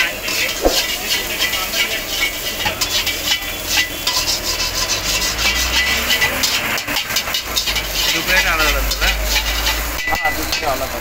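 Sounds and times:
frying sizzle: 0.0s - 11.0s
metal spatula scraping wok: 0.0s - 11.0s.

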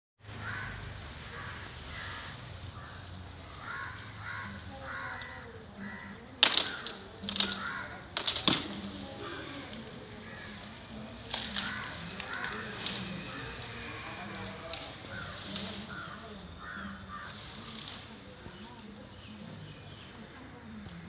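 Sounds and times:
elephant breaking palm fronds: 6.4s - 18.1s.

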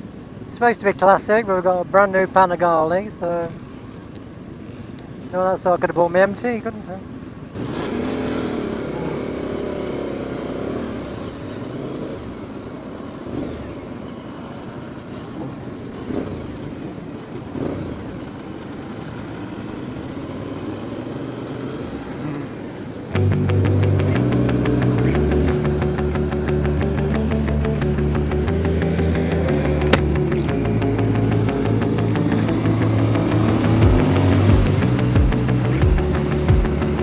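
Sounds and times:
motorcycles accelerating: 6.2s - 37.0s
music: 23.2s - 37.0s.

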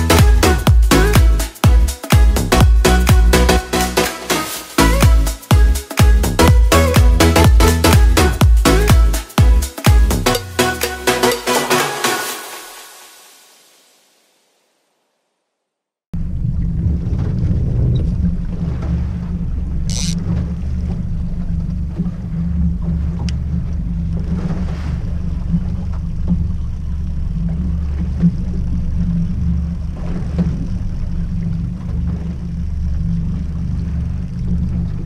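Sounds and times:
outboard motor droning: 0.0s - 12.6s, 16.2s - 35.0s.

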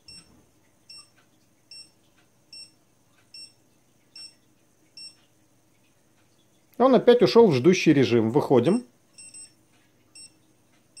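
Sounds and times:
short high beeps: 9.2s - 9.6s.

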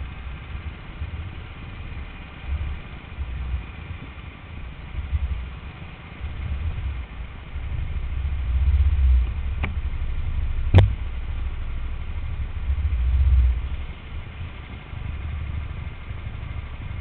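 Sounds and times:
go-kart engine running: 0.0s - 17.0s.

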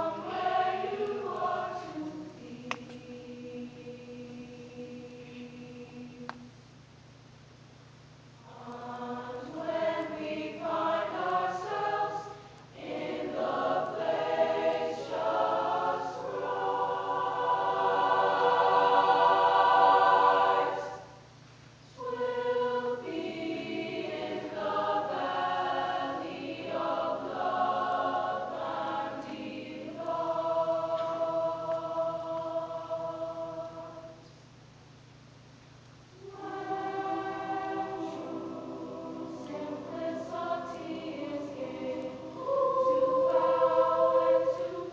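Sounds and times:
children's choir singing: 0.0s - 6.4s, 8.4s - 21.2s, 22.0s - 34.2s, 36.2s - 44.9s.

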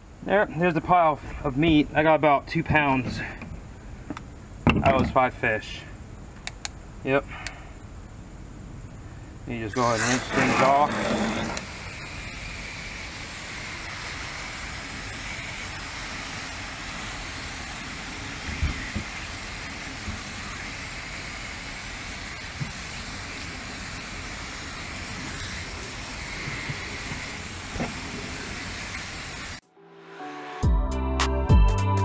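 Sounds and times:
hose spray hissing: 9.6s - 29.6s.

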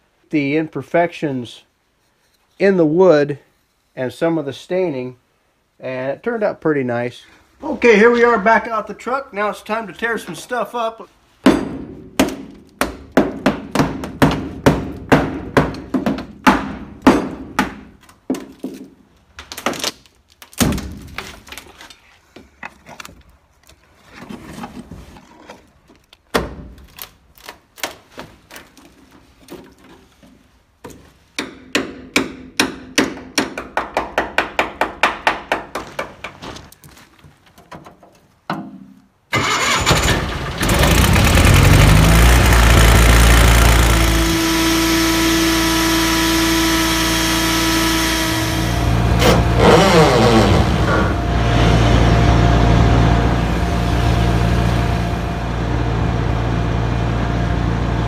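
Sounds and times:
hammer striking wooden floor: 11.4s - 18.9s
wood cracking: 18.0s - 22.0s, 25.4s - 29.8s
loud steady engine running: 40.3s - 58.0s.

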